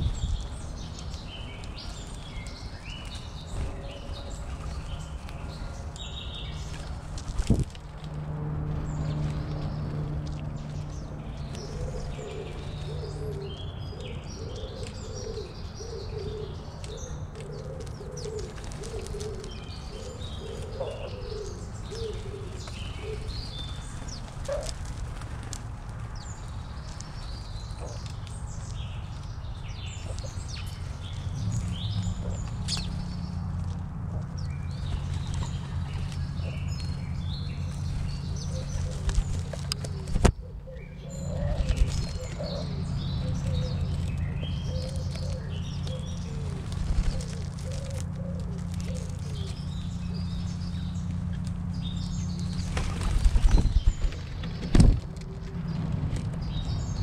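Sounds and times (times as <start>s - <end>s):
steady low hum: 0.0s - 15.7s
small birds chirping: 0.0s - 57.0s
dove cooing: 11.4s - 25.0s, 37.7s - 50.9s.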